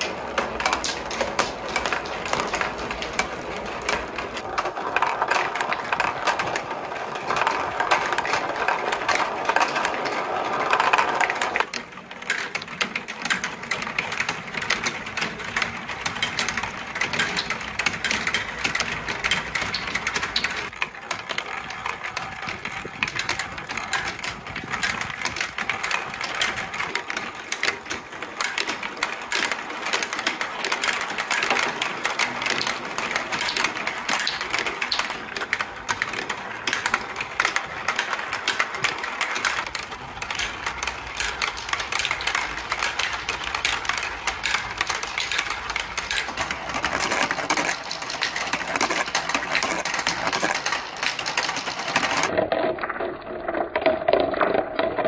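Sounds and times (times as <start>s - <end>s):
marbles rattling through plastic tracks: 0.0s - 55.0s.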